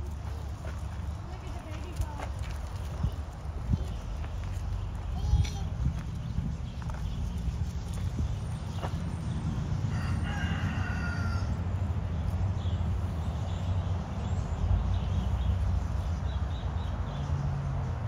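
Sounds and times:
steady low rumble: 0:00.0 - 0:10.3
rooster crowing: 0:09.9 - 0:11.7.

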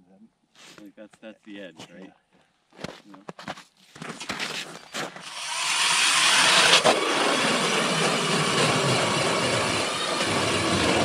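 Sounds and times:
power ice auger drilling: 0:04.9 - 0:11.0.

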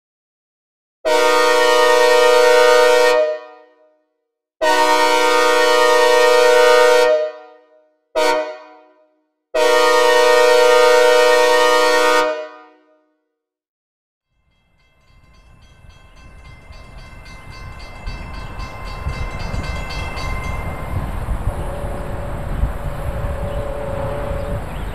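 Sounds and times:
train air horn blasts: 0:01.1 - 0:03.9, 0:04.6 - 0:13.0, 0:21.4 - 0:24.8
train rumble: 0:14.5 - 0:24.9.

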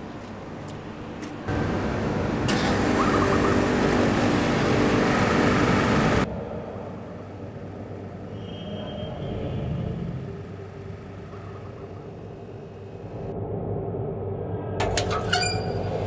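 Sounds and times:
city traffic roar: 0:00.0 - 0:13.4
low rumble: 0:11.3 - 0:16.0.

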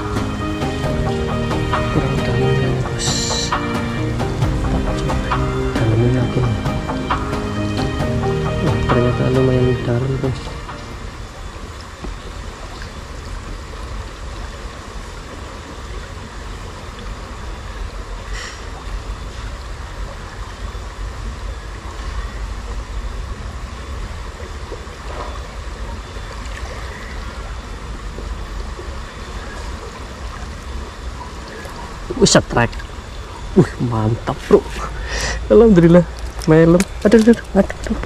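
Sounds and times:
river water flowing: 0:00.0 - 0:38.0.

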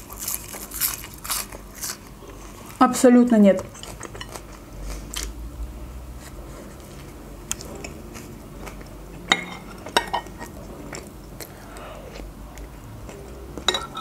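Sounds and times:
close-up chewing: 0:00.0 - 0:02.8, 0:06.2 - 0:13.7
metal spoon clinking on glass bowl: 0:13.7 - 0:14.0.

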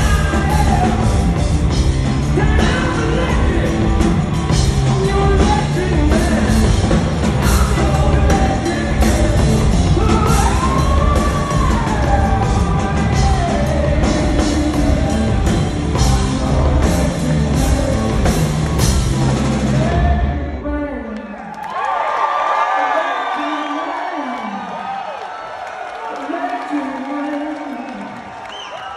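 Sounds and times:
man singing: 0:00.0 - 0:20.7.

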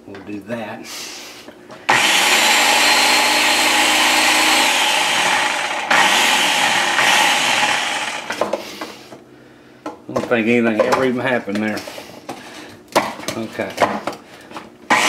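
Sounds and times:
food chopper motor whirring: 0:01.9 - 0:08.6.

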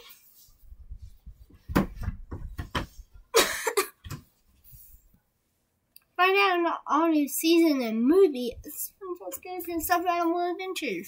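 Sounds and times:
toys thumping and rustling on rug: 0:01.0 - 0:03.0.

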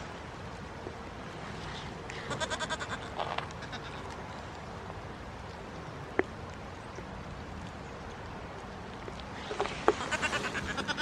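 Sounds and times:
steady background hiss: 0:00.0 - 0:11.0
goat kid bleating: 0:02.3 - 0:04.0, 0:10.0 - 0:11.0.

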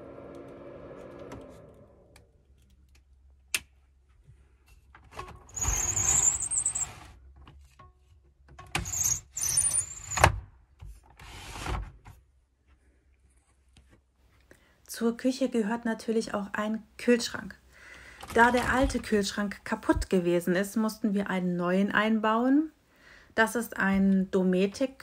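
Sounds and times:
window blind sliding on rails: 0:00.0 - 0:02.2, 0:05.5 - 0:07.2, 0:11.2 - 0:11.8.

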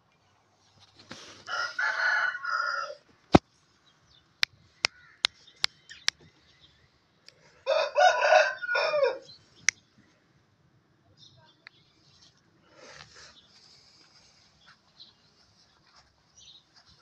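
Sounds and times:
rooster crowing: 0:01.4 - 0:03.0, 0:07.6 - 0:09.3.

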